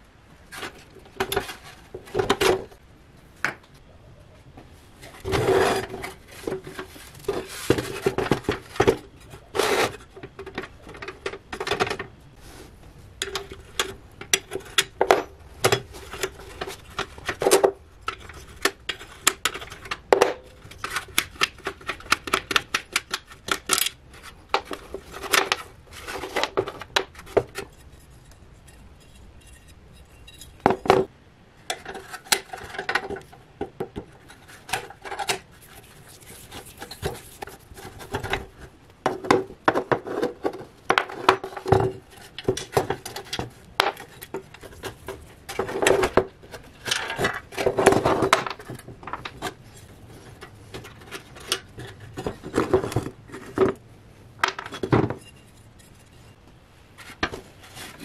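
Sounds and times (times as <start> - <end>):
metal clinks and scraping: 27.6 - 30.9, 54.6 - 56.4.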